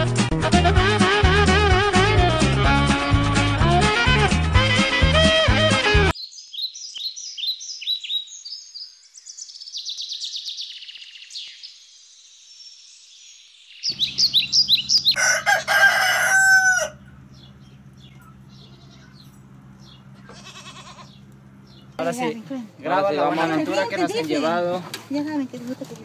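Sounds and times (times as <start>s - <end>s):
small birds chirping: 6.1s - 15.2s, 17.0s - 22.6s
steady low hum: 13.9s - 23.2s
rooster crowing: 15.0s - 17.3s.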